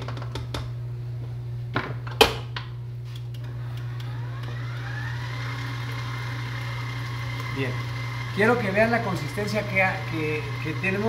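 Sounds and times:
stand mixer motor whine: 3.5s - 11.0s.

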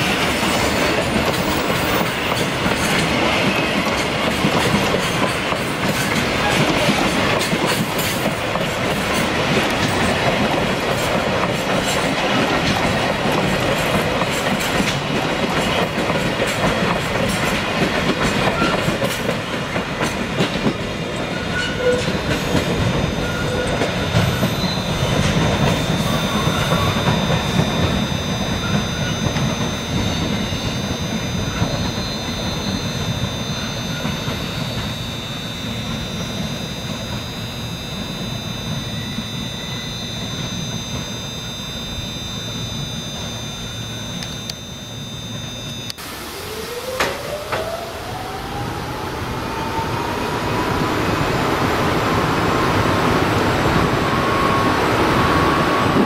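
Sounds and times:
train wheels clicking over rail joints: 0.0s - 35.0s
train rolling rumble: 0.0s - 44.2s
high-pitched wheel squeal: 21.3s - 46.0s
whine rising in pitch: 22.3s - 56.0s.

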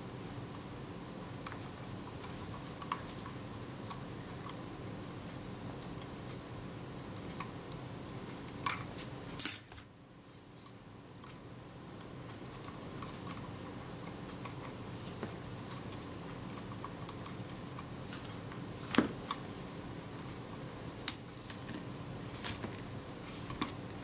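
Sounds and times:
steady background hiss: 0.0s - 24.0s.

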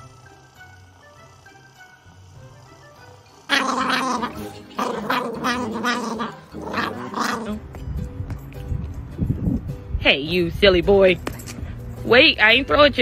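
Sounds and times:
dog moaning grumbles: 3.5s - 7.7s.

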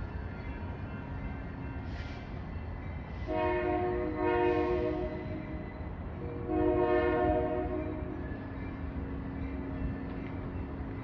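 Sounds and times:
locomotive air horn blasts: 3.3s - 5.1s, 6.4s - 7.8s.

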